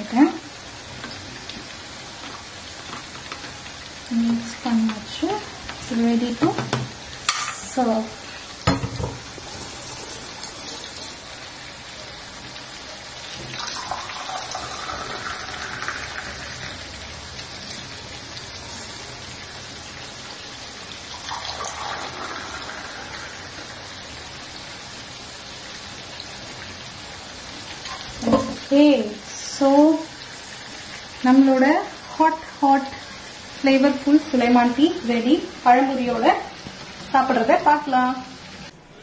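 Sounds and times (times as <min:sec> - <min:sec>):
tea pouring into glass cups: 0:13.6 - 0:16.5, 0:21.1 - 0:23.4.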